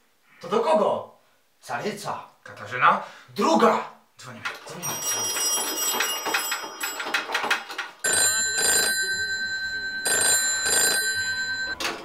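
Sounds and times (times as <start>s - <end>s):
telephone bell ringing: 4.8s - 12.0s.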